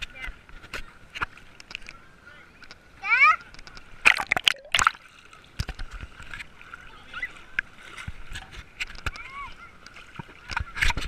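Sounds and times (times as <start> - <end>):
water sloshing: 3.8 - 10.9.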